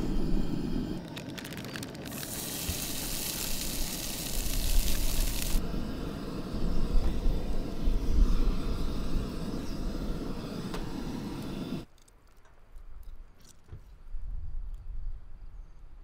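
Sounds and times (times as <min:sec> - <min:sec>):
noodles sizzling in frying pan: 0:01.2 - 0:05.6.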